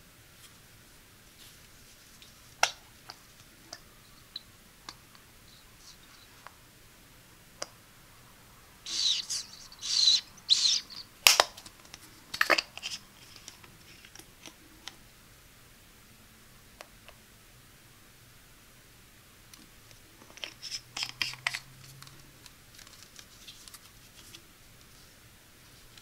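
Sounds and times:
plastic scraping and rubbing: 12.4s - 14.3s.

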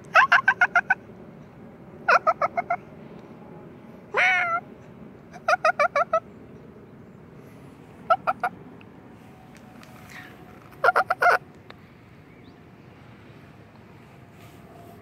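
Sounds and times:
animal staccato calls: 10.7s - 11.4s.

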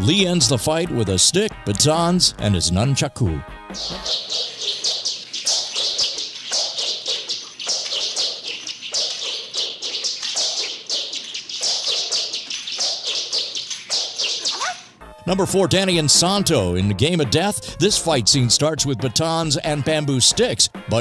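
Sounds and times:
nunchaku whistling swishes: 3.8s - 15.0s.

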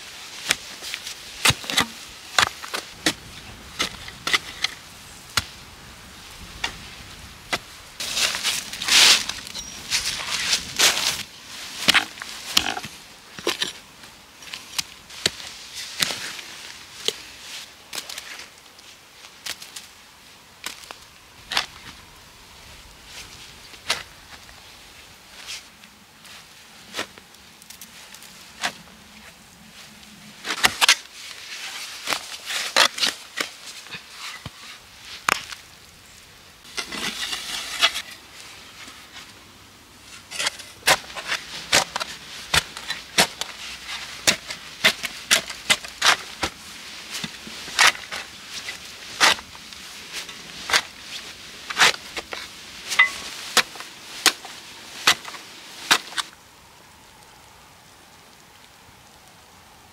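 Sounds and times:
spade striking earth: 1.4s - 4.8s, 11.8s - 13.8s, 36.7s - 38.2s, 40.1s - 56.3s
spade scraping: 7.5s - 13.8s, 36.7s - 39.3s, 40.0s - 56.3s.

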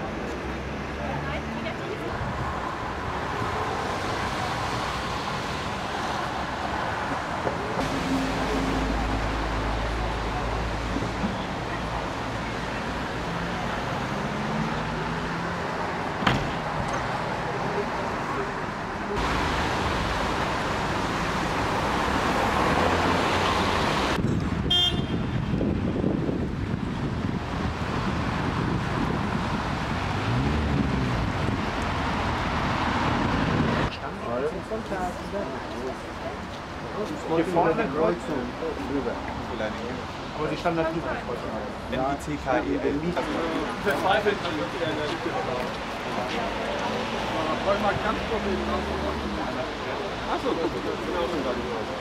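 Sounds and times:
road traffic noise: 0.0s - 52.0s
wind rumble on microphone: 24.1s - 33.9s
vehicle horn toot: 24.7s - 25.5s.

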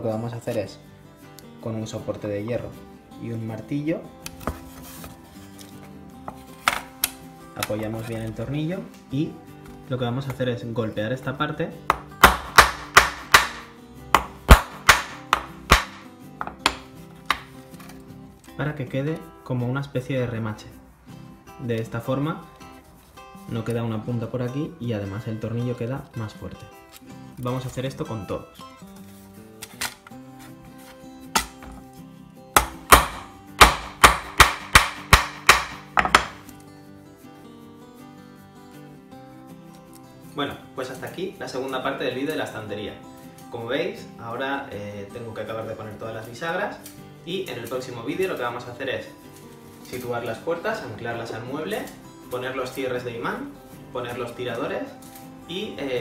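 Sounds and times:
hammer tapping on iron block: 11.9s - 13.6s, 14.2s - 17.5s, 32.6s - 36.4s
hammer striking metal: 32.6s - 36.4s.

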